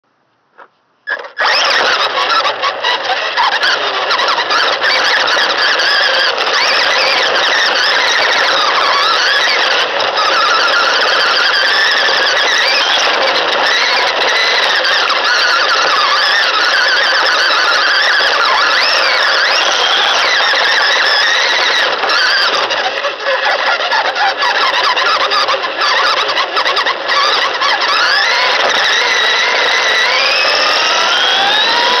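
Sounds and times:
tyres on gravel and dirt: 0.5s - 32.0s
electric toy truck motor whining: 0.6s - 32.0s.

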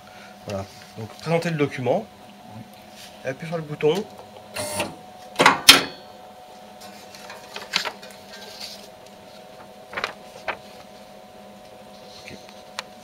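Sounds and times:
press machine humming: 4.0s - 6.2s
paper sheet rustling and clicking: 7.1s - 11.0s.

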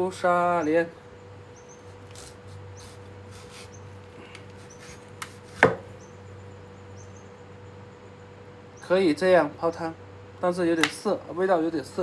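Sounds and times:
cleaver cutting scrapes and clicks: 2.0s - 5.7s
sharp chop on chopping block: 5.2s - 5.8s.

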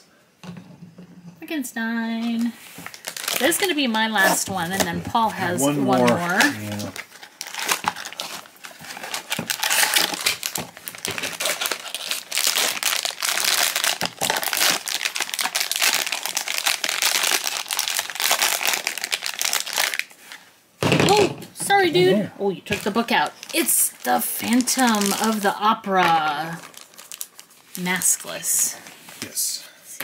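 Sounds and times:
foil bag crinkling and tearing: 2.4s - 4.8s, 5.4s - 20.4s, 22.7s - 28.6s.

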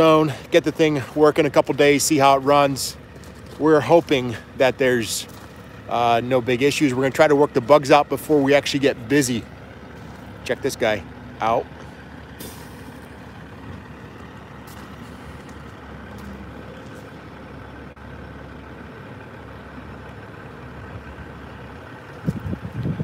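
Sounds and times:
truck diesel engine rumbling: 0.0s - 23.0s.

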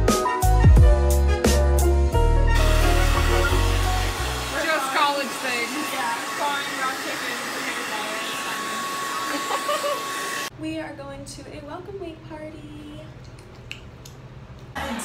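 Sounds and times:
hair dryer running: 2.6s - 10.5s.

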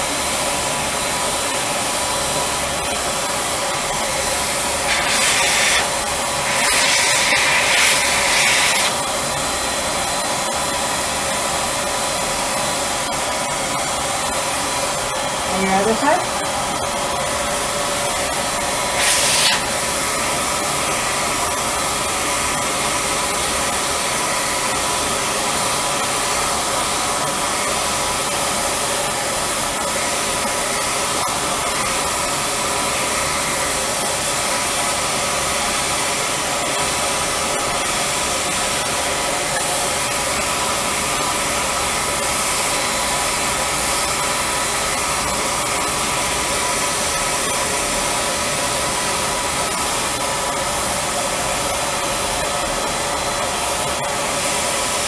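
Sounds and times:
spray turbine whirring: 0.0s - 55.0s
spray gun hissing: 4.3s - 9.0s, 18.9s - 19.8s.

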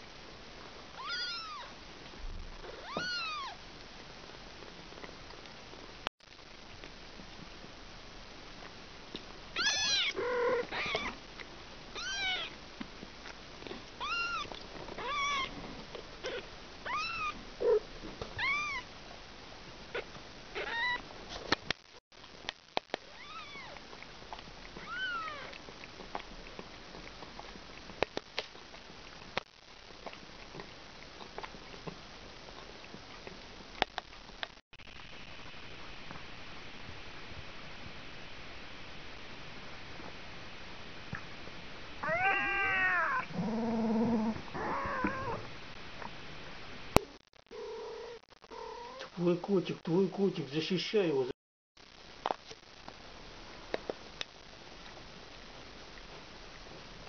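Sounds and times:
kitten mewing: 9.6s - 11.2s, 24.8s - 25.6s, 42.0s - 43.4s, 44.6s - 45.4s.

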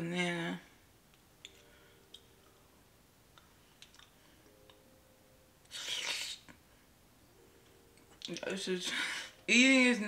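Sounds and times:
quiet chewing: 3.4s - 4.8s.

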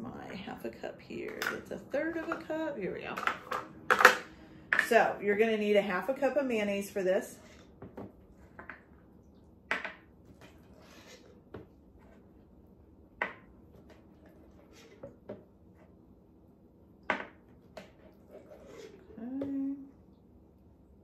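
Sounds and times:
spatula scraping cup and jar: 17.9s - 19.1s.

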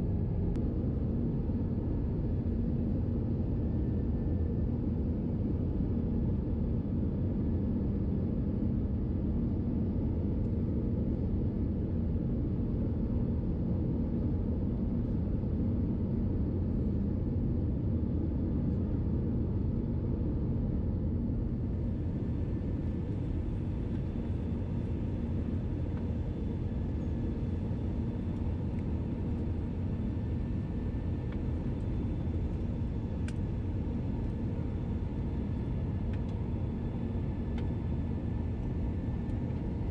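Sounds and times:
aircraft cabin rumble: 21.3s - 39.9s.

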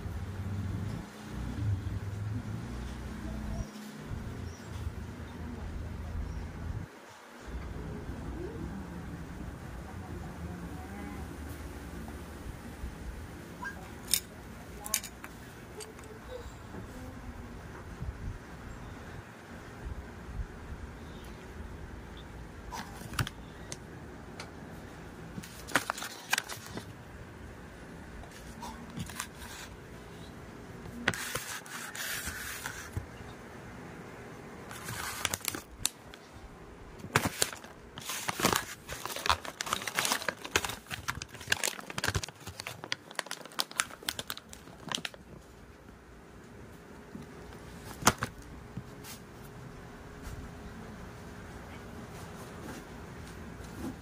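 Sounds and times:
plastic bag crinkling: 34.7s - 36.2s, 37.0s - 45.5s.

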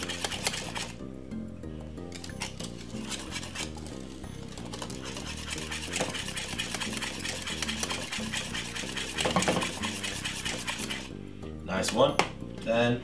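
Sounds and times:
wire whisk scraping a pan: 0.0s - 1.0s, 2.2s - 11.1s.

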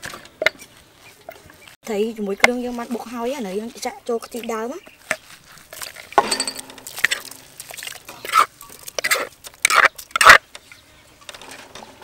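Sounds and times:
liquid splashing in a bowl: 5.7s - 10.2s.

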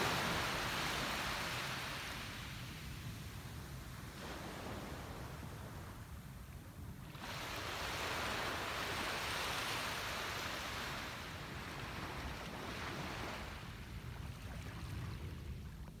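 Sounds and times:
small waves washing on beach: 0.0s - 16.0s.

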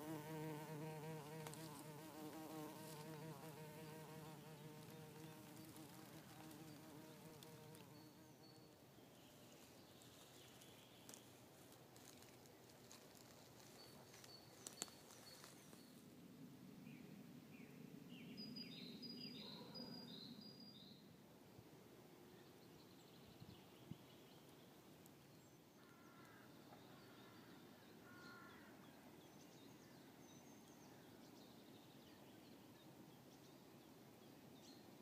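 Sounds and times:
bumblebee buzzing in flight: 0.0s - 8.0s.

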